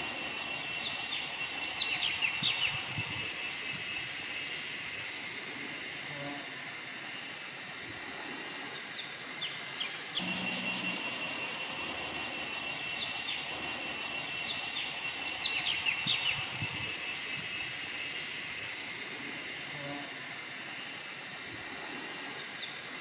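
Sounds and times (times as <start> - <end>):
birds chirping: 0.0 - 4.7, 9.0 - 18.4
high insect drone: 0.0 - 23.0.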